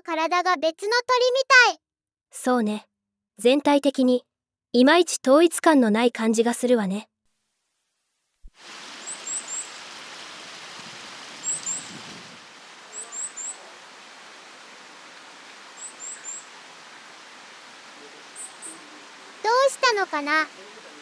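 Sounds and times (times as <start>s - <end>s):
steady outdoor hiss: 8.5s - 21.0s
bird giving high thin call notes: 9.0s - 9.8s, 11.4s - 12.0s, 12.8s - 14.0s, 15.7s - 16.7s.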